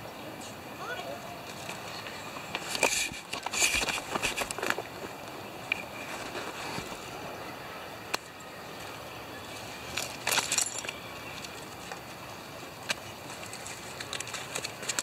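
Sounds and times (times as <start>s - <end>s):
steady background hiss: 0.0s - 15.0s
aluminium foil crinkling: 13.2s - 15.0s.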